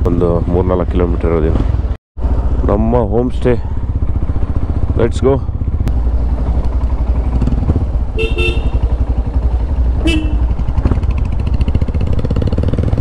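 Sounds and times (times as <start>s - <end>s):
motorcycle engine running: 1.7s - 13.0s
vehicle horn honks: 8.2s - 8.9s, 10.0s - 10.5s.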